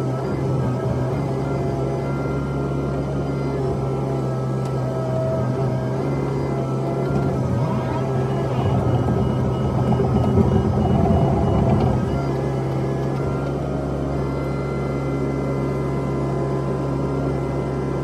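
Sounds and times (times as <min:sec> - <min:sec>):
excavator engine and hydraulics: 0:00.0 - 0:18.0.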